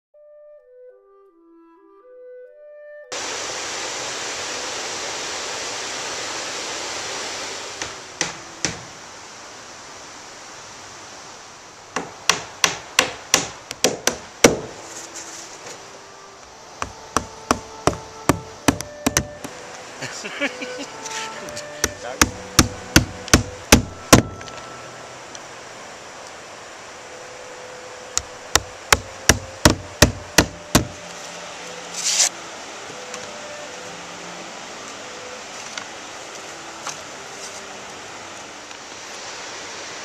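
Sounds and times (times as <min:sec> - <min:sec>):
flute music: 0:00.2 - 0:03.3, 0:07.0 - 0:09.2, 0:14.4 - 0:39.2
steady rushing hiss: 0:03.1 - 0:40.0
hammer driving nails into shingles: 0:12.0 - 0:14.8, 0:17.2 - 0:19.5, 0:21.8 - 0:24.2, 0:28.6 - 0:30.9.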